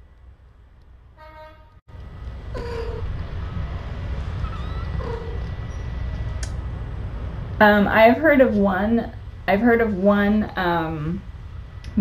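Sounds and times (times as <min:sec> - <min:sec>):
steady low hum: 0:00.0 - 0:12.0
kittens mewing: 0:02.5 - 0:03.1, 0:04.5 - 0:05.6.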